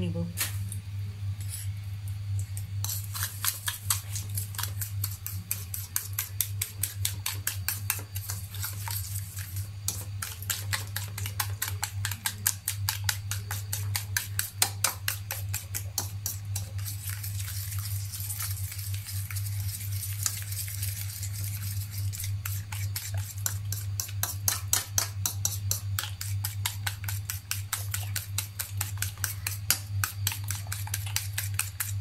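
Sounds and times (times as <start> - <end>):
fork beating in ceramic bowl: 9.9 - 16.7, 22.4 - 32.0.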